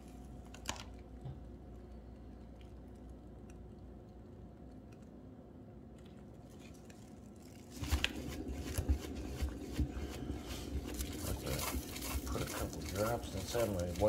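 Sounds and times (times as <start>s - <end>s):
turntable low rumble: 7.5s - 14.0s.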